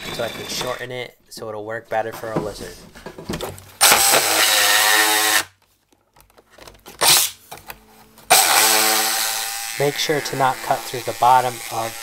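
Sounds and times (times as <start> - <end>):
jigsaw cutting plywood: 3.8 - 5.5, 8.3 - 12.0.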